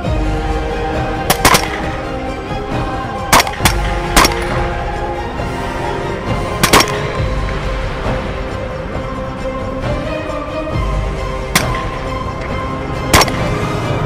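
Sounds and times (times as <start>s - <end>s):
background music: 0.0s - 14.0s
suppressed rifle shots: 1.3s - 1.9s, 3.3s - 4.5s, 6.6s - 7.1s, 11.6s - 11.9s, 13.1s - 13.5s.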